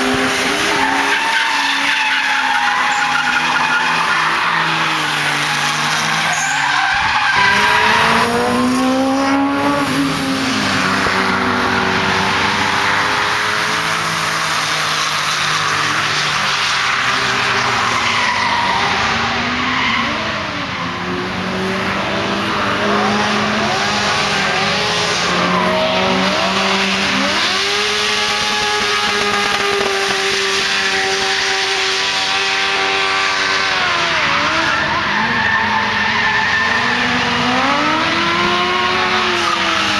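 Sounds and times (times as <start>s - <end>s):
tyres skidding and squealing: 0.0s - 39.9s
small car engine revving: 7.3s - 16.4s, 18.9s - 35.8s, 36.7s - 39.9s.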